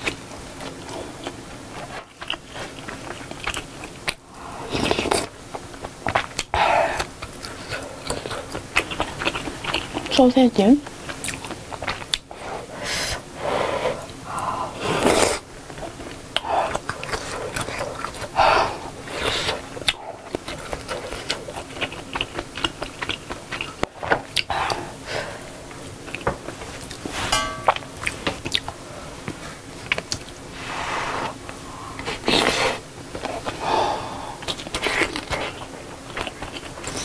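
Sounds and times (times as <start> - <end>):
chewing and swallowing: 0.1 - 10.1, 11.1 - 12.6, 15.0 - 24.8
ringing clink: 27.3 - 27.8.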